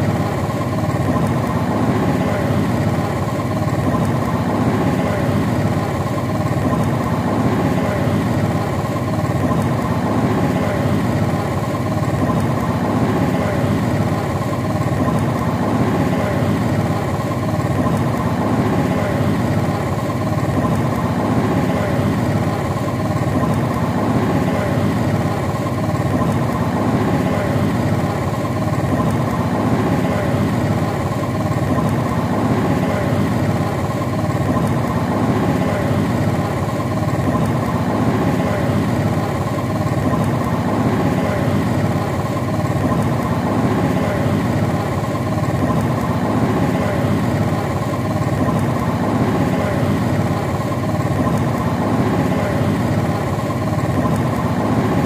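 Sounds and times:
motorbike engine running: 0:00.0 - 0:55.0.

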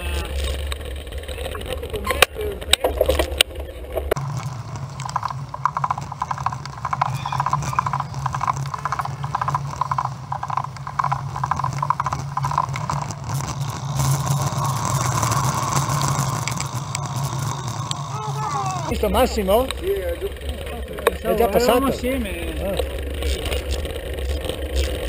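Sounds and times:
freewheel hub ticking: 0:00.0 - 0:25.0
low rumble: 0:00.0 - 0:25.0
steady hiss: 0:10.5 - 0:25.0.

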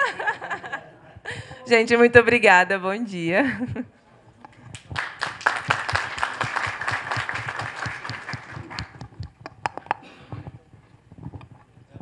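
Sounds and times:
audience applauding: 0:04.7 - 0:09.2.

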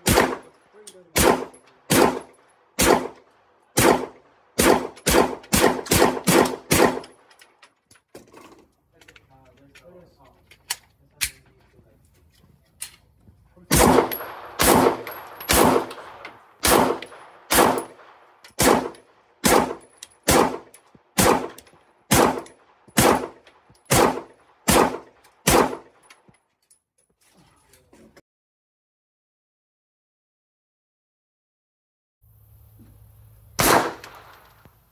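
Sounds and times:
echoing gunshots: 0:00.0 - 0:07.3, 0:13.7 - 0:26.0, 0:33.6 - 0:34.6.

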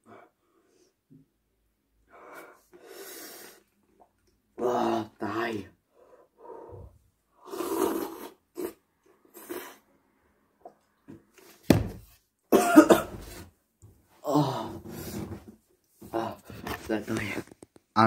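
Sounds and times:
man coughing: 0:12.5 - 0:13.2.

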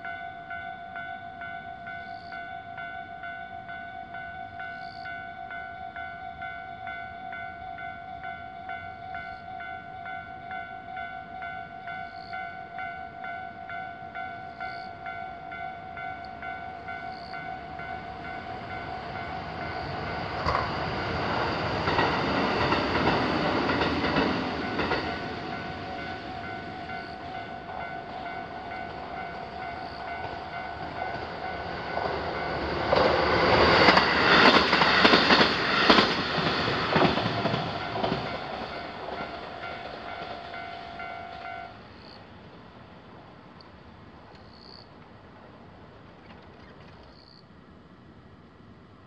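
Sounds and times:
railroad crossing bell ringing: 0:00.0 - 0:45.6
train passing: 0:00.0 - 0:49.0
train wheels clacking on rail joints: 0:16.2 - 0:42.2.

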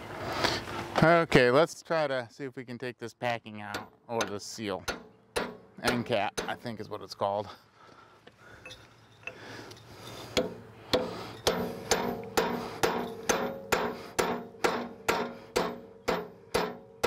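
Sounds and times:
hammer striking chisel on metal: 0:03.7 - 0:06.7, 0:10.4 - 0:17.0.

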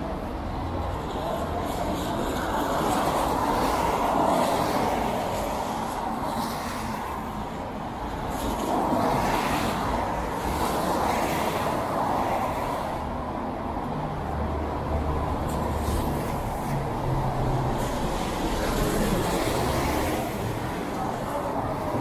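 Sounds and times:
tyres hissing on wet road: 0:15.5 - 0:22.0.

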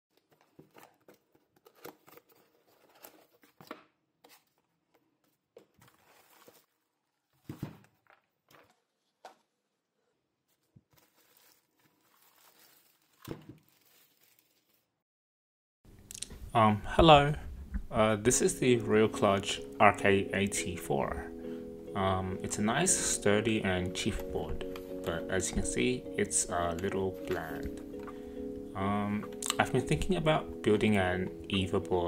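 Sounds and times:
plastic sleeve crinkling: 0:00.1 - 0:03.7, 0:04.3 - 0:09.6, 0:10.4 - 0:15.0
cardboard box being opened: 0:00.2 - 0:04.7, 0:05.8 - 0:06.7, 0:10.9 - 0:14.7.

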